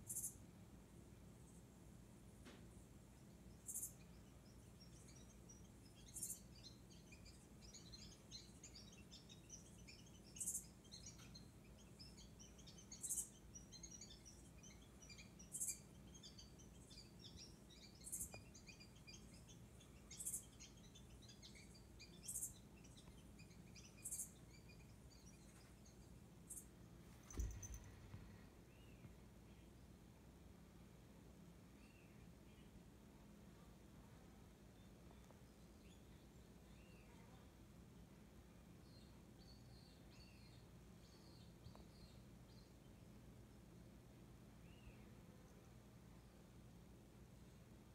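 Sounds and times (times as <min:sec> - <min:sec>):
birds twittering from tv: 0:03.5 - 0:29.1.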